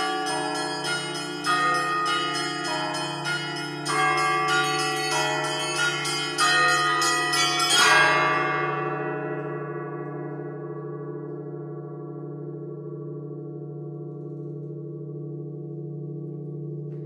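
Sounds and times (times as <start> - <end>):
church bells ringing: 0.0 - 13.6
low bell hum: 0.0 - 17.0.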